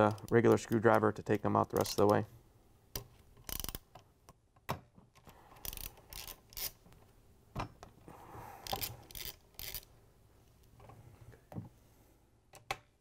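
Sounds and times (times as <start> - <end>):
hand ratchet clicking and grinding: 0.0 - 2.2, 3.4 - 3.9, 5.5 - 6.8, 8.6 - 9.9.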